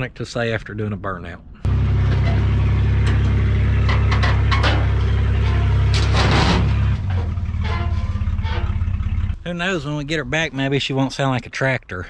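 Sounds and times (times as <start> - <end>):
pickup engine without muffler: 1.6 - 9.9.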